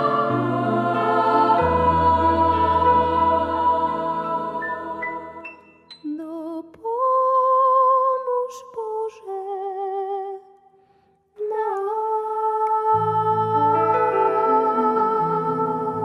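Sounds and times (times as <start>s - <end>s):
woman singing slow melody: 6.0s - 10.5s, 11.4s - 16.0s.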